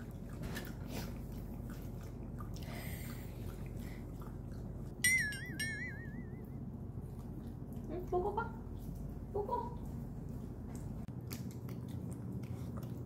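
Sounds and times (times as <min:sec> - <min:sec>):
dog chewing from a bowl: 0:00.0 - 0:05.2
loud high wavering tone: 0:05.0 - 0:06.6.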